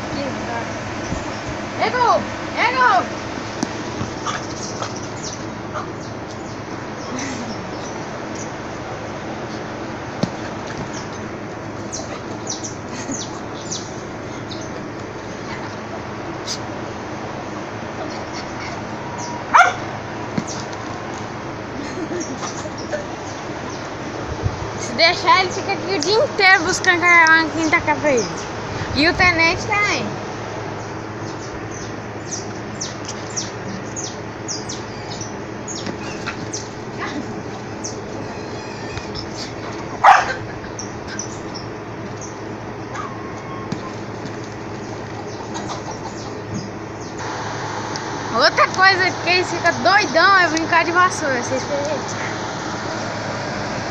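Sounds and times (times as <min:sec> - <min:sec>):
small birds chirping: 0:02.6 - 0:08.6, 0:09.4 - 0:17.2, 0:18.0 - 0:20.8, 0:21.8 - 0:24.1, 0:24.8 - 0:30.0, 0:30.6 - 0:47.3
steady background hiss: 0:44.8 - 0:53.9.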